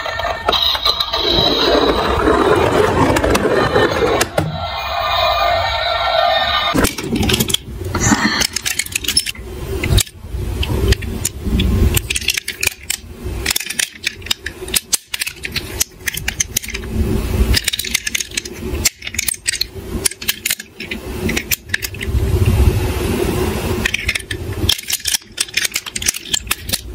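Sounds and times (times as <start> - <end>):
toy cars clinking together: 6.7 - 10.2, 10.9 - 16.9, 17.5 - 22.1, 23.8 - 26.9
handling rattles and knocks: 6.8 - 22.2, 23.8 - 26.9.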